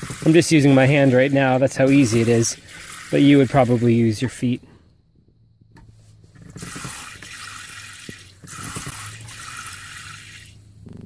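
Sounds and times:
water spraying into steel sink: 0.0 - 4.6, 6.4 - 10.6.

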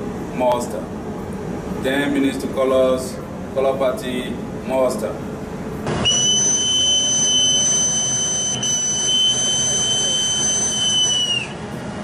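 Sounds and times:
boatswain's call shrill high note: 6.0 - 11.5.

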